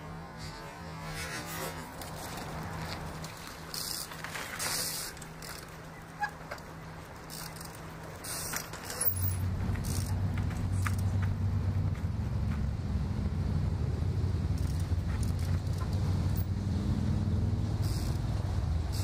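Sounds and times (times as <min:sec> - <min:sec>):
steady low rumble: 0:09.2 - 0:19.0.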